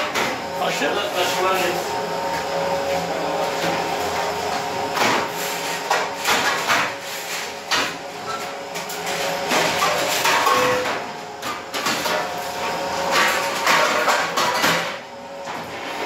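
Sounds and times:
metal trays clattering: 9.0 - 12.3, 13.1 - 15.0.

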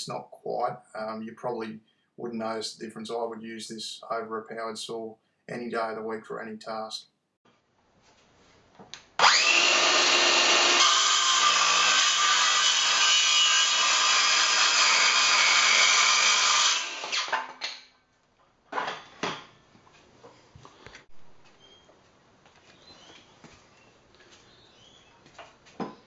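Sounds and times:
circular saw cutting wood: 9.2 - 17.4.

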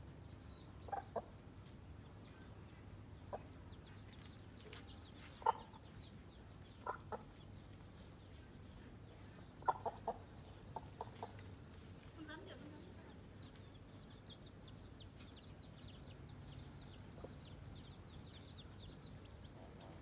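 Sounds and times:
hen clucking: 0.8 - 1.3, 5.2 - 5.9, 6.7 - 7.4, 9.6 - 11.5.

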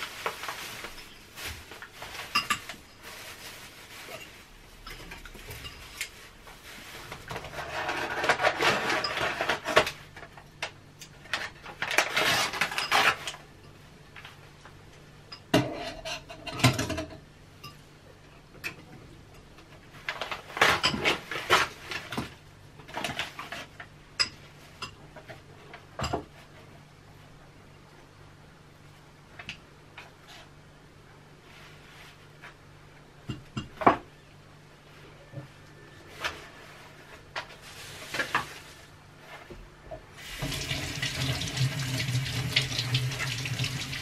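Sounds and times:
wrapping crinkling and rustling: 0.0 - 13.5, 19.8 - 24.0, 36.1 - 39.5.

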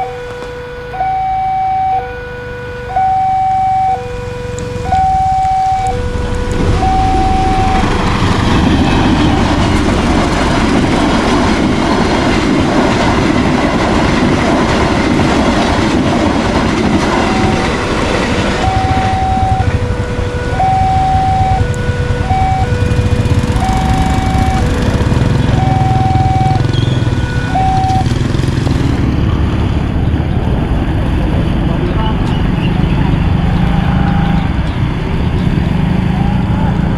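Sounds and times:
train passing: 0.0 - 36.9
level-crossing two-tone chime: 6.7 - 8.0.

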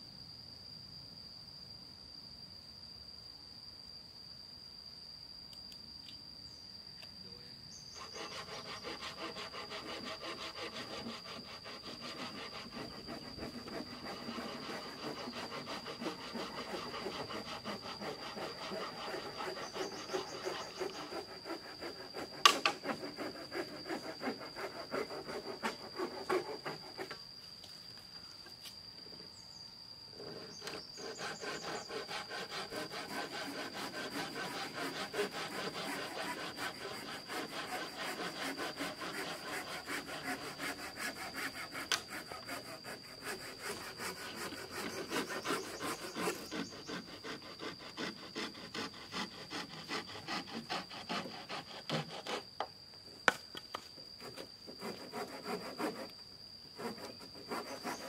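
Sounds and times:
hand saw cutting wood: 8.0 - 27.2, 30.3 - 52.4, 54.2 - 56.1, 56.8 - 58.0.

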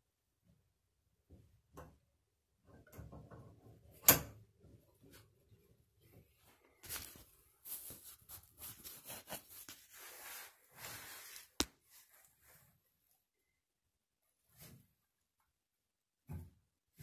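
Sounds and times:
rubbing and scraping: 6.0 - 12.8.

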